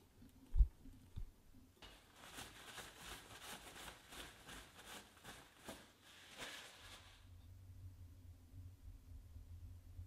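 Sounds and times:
cloth rubbing: 0:01.8 - 0:07.4.

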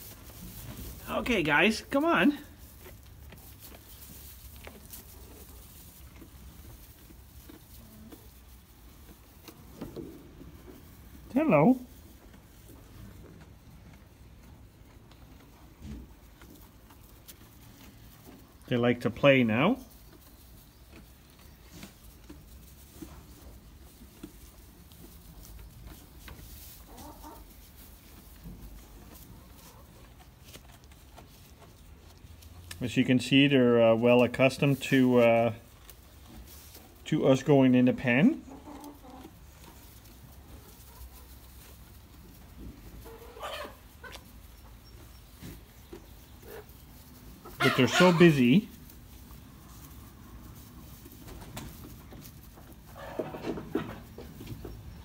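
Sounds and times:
rustling in straw: 0:00.0 - 0:55.0
faint goat call: 0:47.6 - 0:48.4.

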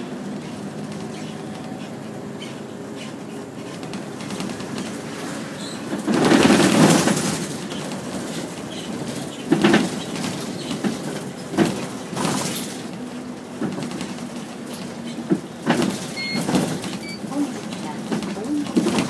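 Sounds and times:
bus engine and road drone: 0:00.0 - 0:19.0
cabin rattles and knocks: 0:09.0 - 0:12.6.

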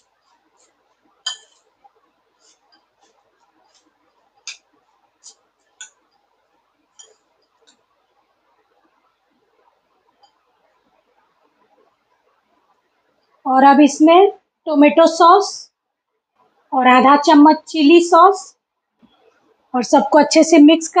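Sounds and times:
spoon clinking on glass: 0:01.2 - 0:01.7, 0:07.0 - 0:07.2.

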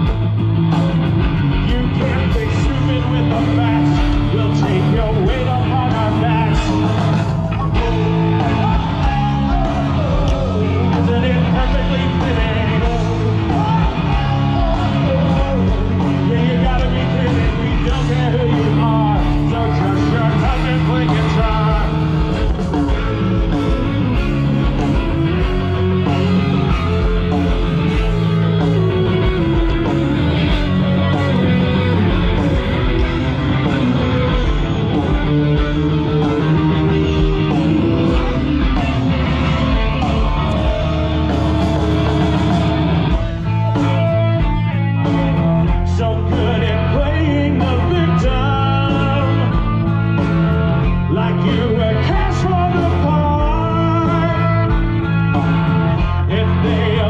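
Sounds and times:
bass: 0:00.0 - 0:57.0
drums: 0:00.0 - 0:57.0
electric guitar: 0:00.0 - 0:57.0
person singing: 0:01.5 - 0:44.4, 0:45.0 - 0:49.7, 0:50.8 - 0:54.9, 0:56.0 - 0:57.0.

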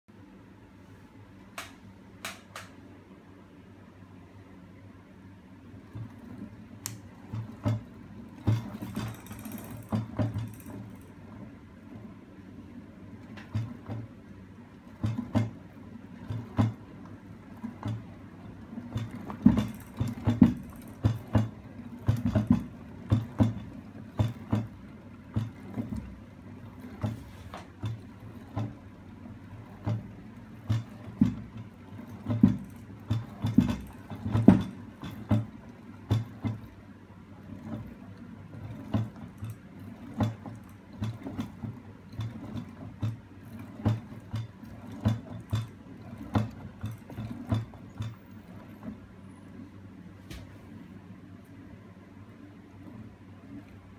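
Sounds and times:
low mechanical rattle: 0:05.7 - 0:49.9
rocking mechanism arm knocking: 0:05.9 - 0:11.2, 0:14.8 - 0:16.9, 0:17.5 - 0:28.8, 0:29.5 - 0:36.8, 0:37.4 - 0:49.0.

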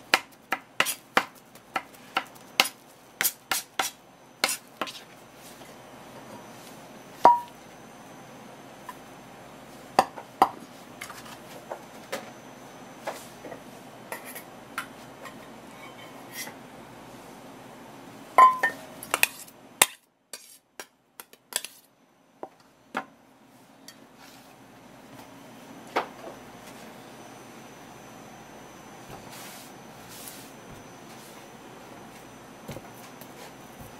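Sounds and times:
knife tapping metal bowl: 0:07.3 - 0:07.5.

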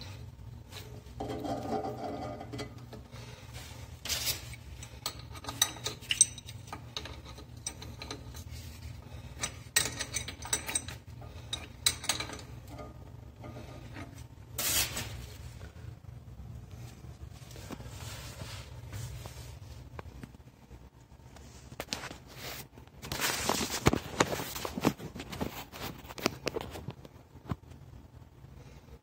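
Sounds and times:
low steady hum: 0:00.0 - 0:29.0
metal tool clinking on valve: 0:04.5 - 0:08.4, 0:09.3 - 0:13.6.

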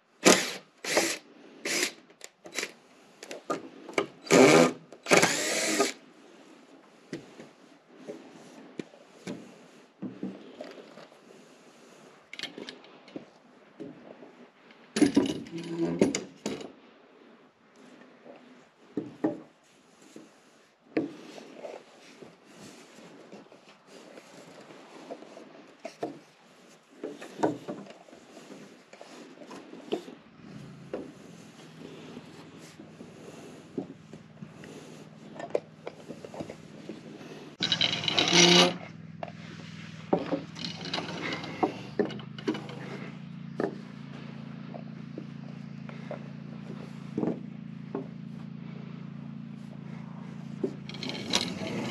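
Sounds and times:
wood rubbing: 0:00.2 - 0:02.7, 0:04.2 - 0:06.0, 0:21.2 - 0:43.8, 0:49.9 - 0:51.9
low steady hum: 0:22.4 - 0:51.9
small metallic jingles: 0:37.6 - 0:38.9, 0:40.5 - 0:43.0
clatter: 0:37.6 - 0:43.9, 0:49.8 - 0:51.9.

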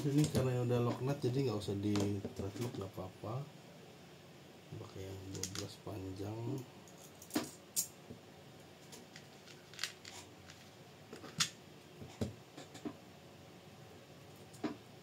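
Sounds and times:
small metal parts clicking: 0:06.8 - 0:08.0.

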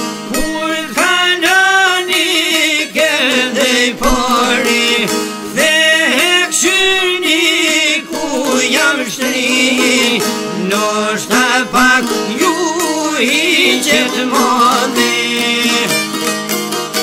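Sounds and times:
ornamented folk melody: 0:00.0 - 0:17.0
plucked strings: 0:00.0 - 0:17.0.

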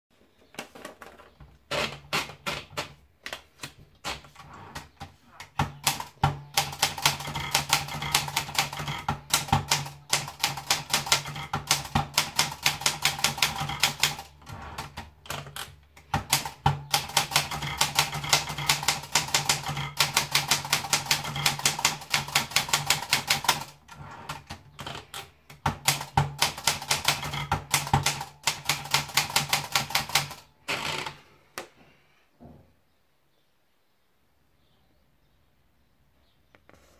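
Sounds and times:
typewriter keystrokes: 0:05.4 - 0:30.5.

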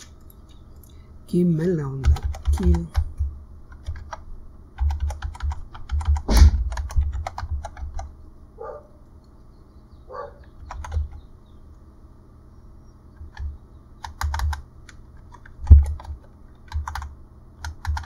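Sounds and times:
typing on computer keyboard: 0:02.0 - 0:03.1, 0:03.7 - 0:04.2, 0:04.8 - 0:08.1, 0:10.5 - 0:11.2, 0:13.2 - 0:18.0
louder knock: 0:06.2 - 0:06.7.

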